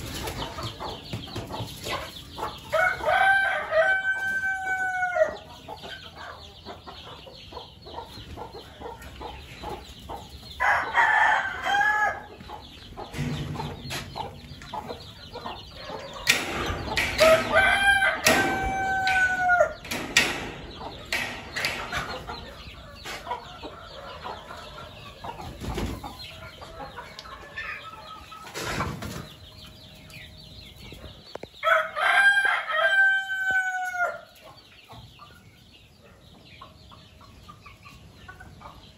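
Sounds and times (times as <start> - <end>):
hens clucking: 0.0 - 38.9
roosters crowing: 2.4 - 5.6, 10.5 - 12.4, 15.5 - 24.9, 31.4 - 34.4.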